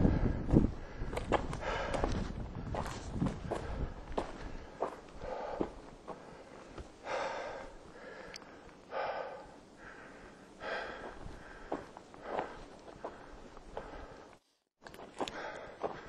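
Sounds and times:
hiker breathing hard: 0.0 - 16.0
footsteps on dirt and stone: 0.5 - 7.0, 10.7 - 16.0.

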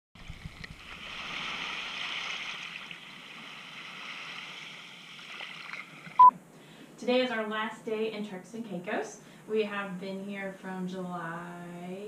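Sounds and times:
small waves washing on beach: 0.2 - 6.2.

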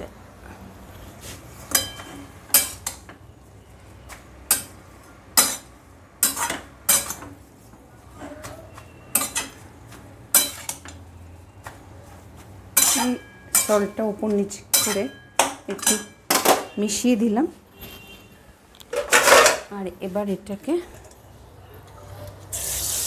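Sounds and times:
metal spatula scraping a pan: 5.4 - 7.4, 8.2 - 11.0.

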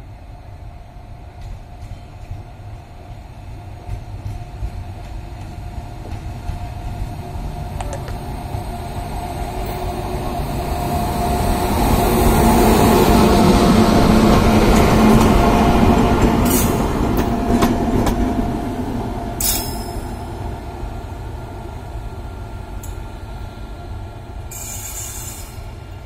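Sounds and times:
electric locomotive hum: 0.0 - 26.0
wheels rumbling on rails: 3.8 - 21.2.

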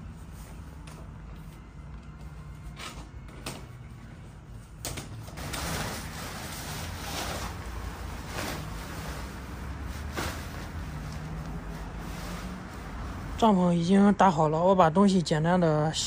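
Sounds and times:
tent fabric rustling: 5.4 - 13.4.

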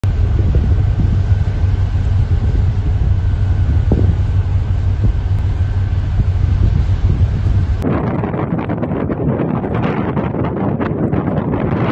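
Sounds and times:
faint steady whine: 0.0 - 8.8
ship engine rumble: 0.0 - 11.9.

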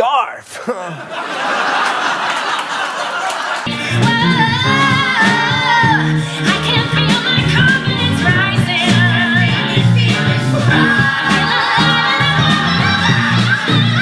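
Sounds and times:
band accompaniment: 3.7 - 14.0
group singing together: 10.3 - 14.0.

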